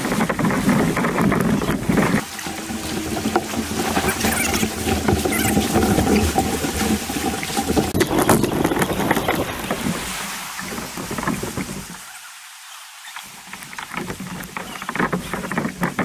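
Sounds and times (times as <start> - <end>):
wind on microphone: 0.0 - 12.0
paddle splashes: 0.0 - 16.0
river water rushing over rapids: 0.0 - 16.0.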